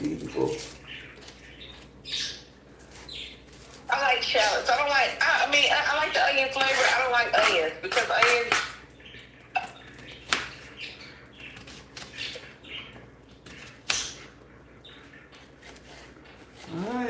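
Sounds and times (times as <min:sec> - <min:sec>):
shallots scraping and rustling: 0:00.0 - 0:01.5, 0:06.5 - 0:08.6.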